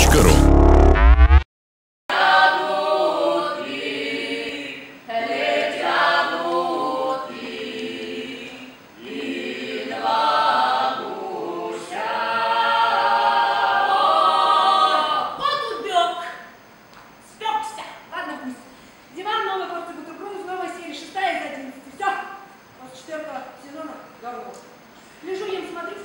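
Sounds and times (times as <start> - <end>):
voices singing unaccompanied: 2.1 - 15.4.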